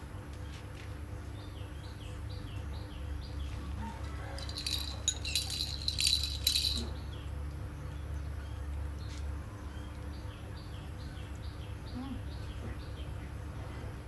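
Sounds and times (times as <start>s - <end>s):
toy rattle balls shaken: 4.3s - 7.0s.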